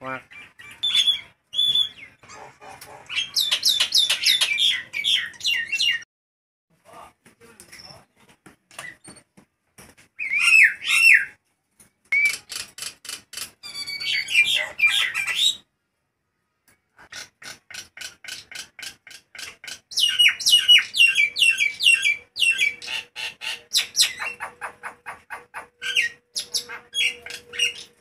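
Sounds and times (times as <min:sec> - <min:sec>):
myna squawking and whistling: 0:00.3 - 0:06.0, 0:13.6 - 0:15.6, 0:19.9 - 0:28.0.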